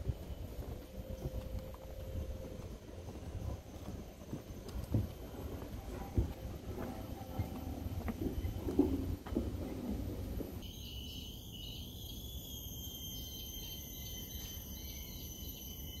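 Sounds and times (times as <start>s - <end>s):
low knocks and thumps: 4.7s - 10.6s
insect chorus: 10.6s - 16.0s.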